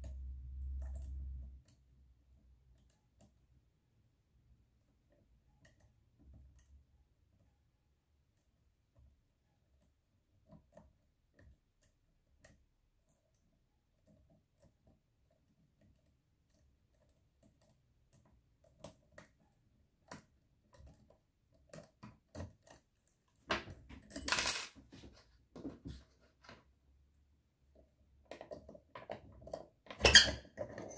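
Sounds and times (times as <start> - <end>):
clattering and rustling: 23.4 - 26.7, 28.3 - 30.9.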